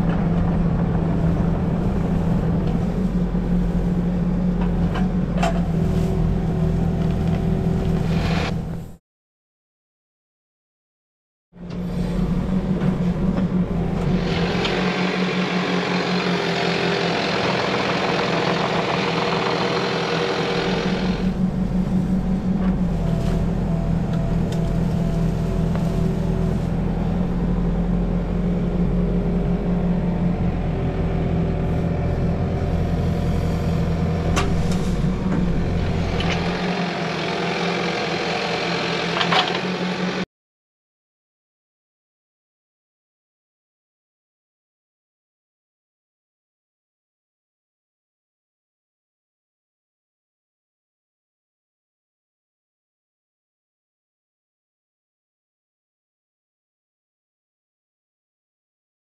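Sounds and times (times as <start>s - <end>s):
diesel engine of heavy machine: 0.0s - 9.0s, 11.6s - 40.3s.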